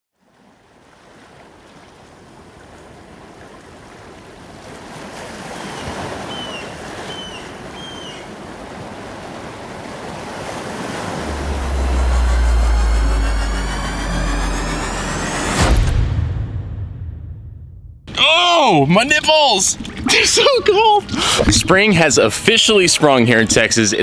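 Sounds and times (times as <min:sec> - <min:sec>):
ocean surf on beach: 0:00.2 - 0:15.4
deep low rumble: 0:10.7 - 0:18.1.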